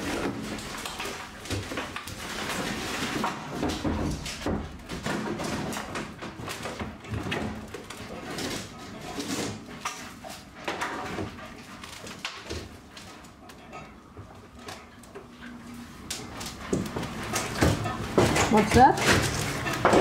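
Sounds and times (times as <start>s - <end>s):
wooden boards being torn out: 16.2s - 20.0s.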